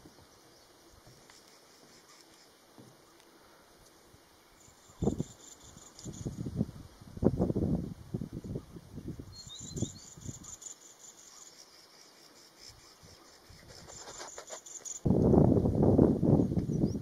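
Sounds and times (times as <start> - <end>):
high-pitched insect trill: 4.4 - 6.7, 9.2 - 15.1
bird chirps: 9.3 - 15.1.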